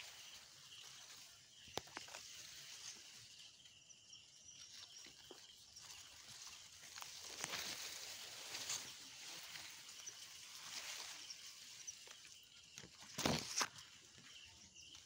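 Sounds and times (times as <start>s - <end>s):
stalks rustling: 0.0s - 3.6s, 4.6s - 15.0s.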